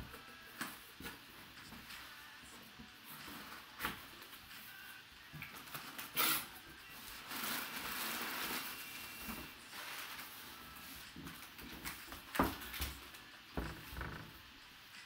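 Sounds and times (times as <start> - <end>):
packing paper rustling: 6.9 - 13.2.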